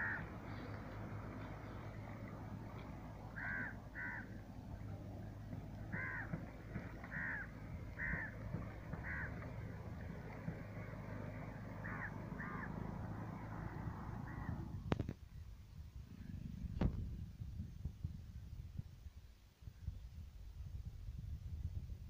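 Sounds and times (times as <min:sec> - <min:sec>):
crow cawing: 0:00.0 - 0:00.3, 0:03.3 - 0:04.4, 0:05.9 - 0:09.6, 0:11.8 - 0:14.6
low background noise: 0:00.0 - 0:22.0.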